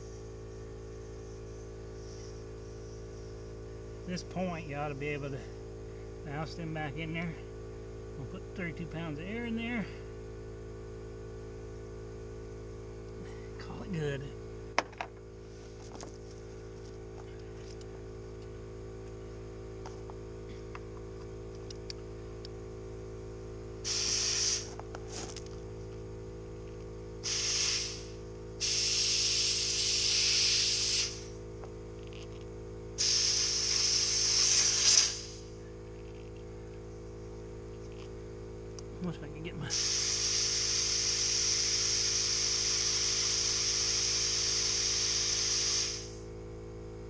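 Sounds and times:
steady hum: 0.0s - 47.0s
compressed air hissing into tire: 23.8s - 25.6s, 27.2s - 36.2s, 39.6s - 46.4s.

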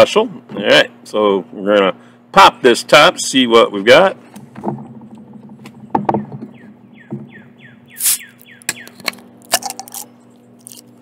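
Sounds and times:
bottle cap hiss: 8.0s - 8.4s
bottle opener scraping squeaks: 8.0s - 10.0s.

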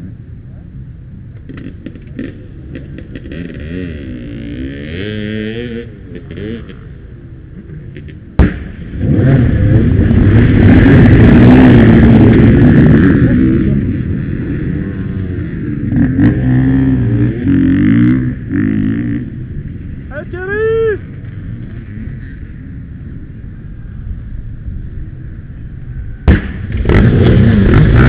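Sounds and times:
dirt bike engines revving: 0.0s - 28.0s.

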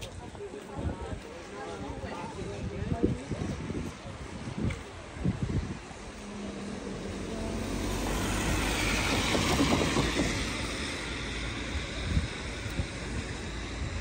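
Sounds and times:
road vehicle driving past: 5.8s - 14.0s.

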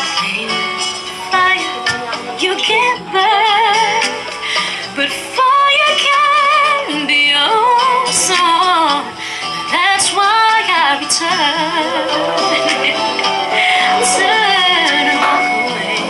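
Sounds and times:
woman singing: 0.0s - 16.0s
singer breathing: 4.3s - 5.0s, 9.1s - 9.7s, 11.9s - 14.1s.

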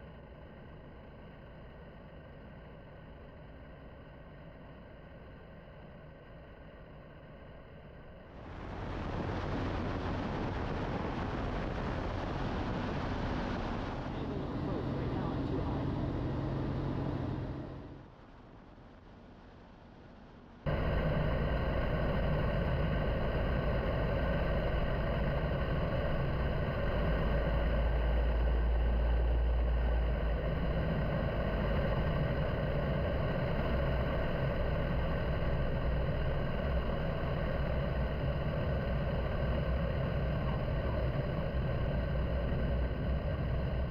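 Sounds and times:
light aircraft engine and propeller: 0.0s - 43.9s
wind noise over airframe: 8.4s - 18.3s, 20.7s - 43.9s.

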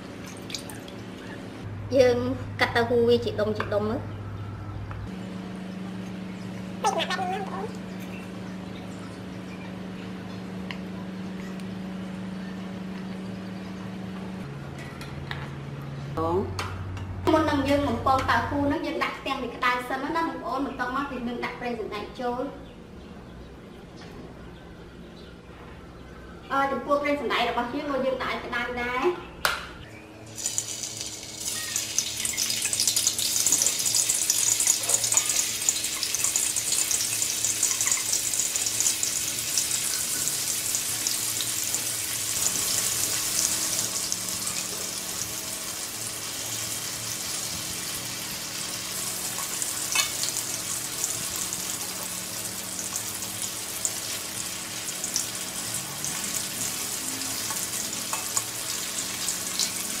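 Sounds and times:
tofu sizzling in hot oil: 30.3s - 60.0s.

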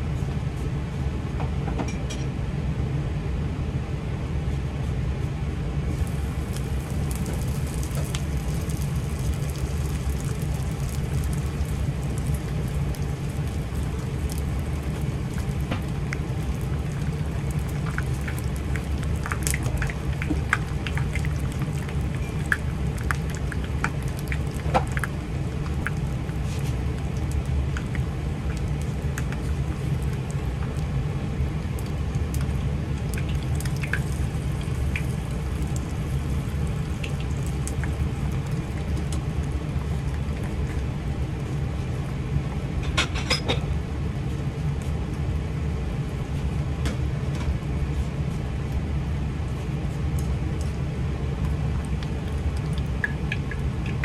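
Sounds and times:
low steady hum: 0.0s - 54.0s
food sizzling in oil: 5.9s - 41.0s.

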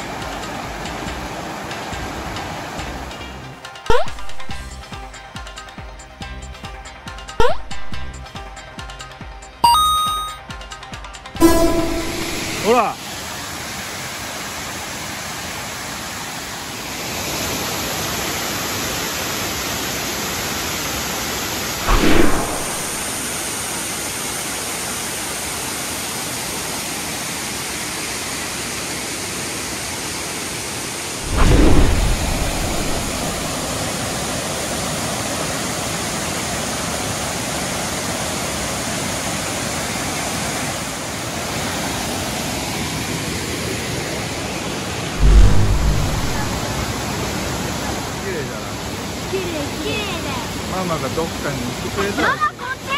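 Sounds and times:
waterfall rushing: 11.5s - 23.8s, 31.0s - 34.6s, 45.0s - 47.6s
low bumps: 31.2s - 33.7s, 45.2s - 46.8s.

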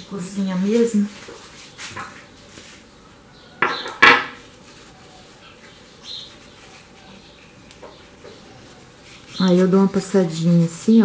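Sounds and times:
paper rustling: 0.3s - 3.0s, 4.0s - 11.0s
objects handled on stone worktop: 3.5s - 4.5s.

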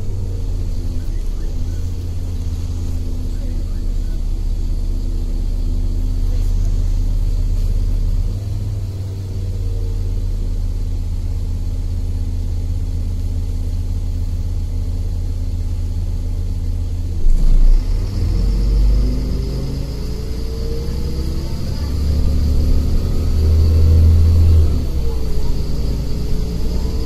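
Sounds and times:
bus engine rumbling: 0.0s - 27.0s.

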